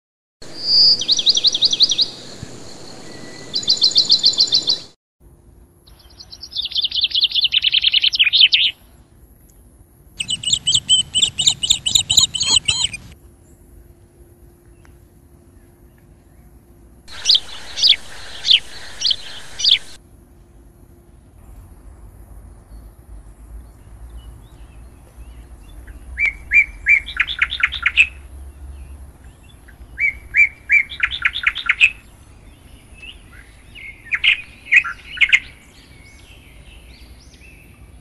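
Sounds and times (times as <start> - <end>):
birds singing trills: 0.5 - 4.9, 5.9 - 9.0, 10.2 - 13.6, 14.6 - 20.0, 22.7 - 38.0
sharp bird chirps: 0.5 - 4.9, 10.2 - 13.2, 17.1 - 20.0.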